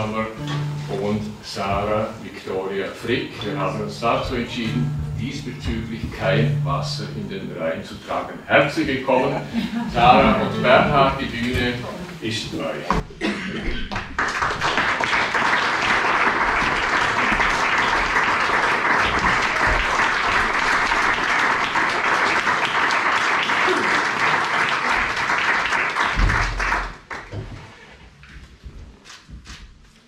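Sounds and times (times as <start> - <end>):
audience applauding: 13.8 - 27.4.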